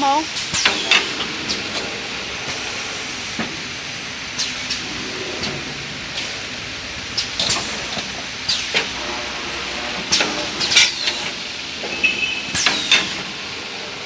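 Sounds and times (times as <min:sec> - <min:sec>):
steady mechanical hiss: 0:00.0 - 0:14.0
machine clicks and clacks: 0:00.3 - 0:02.8, 0:07.1 - 0:09.1, 0:10.0 - 0:14.0.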